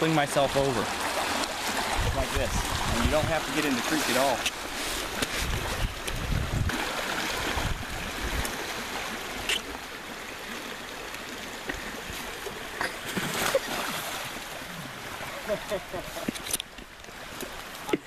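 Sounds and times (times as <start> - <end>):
creek rushing: 0.0 - 18.0
splashes in water: 11.8 - 16.6.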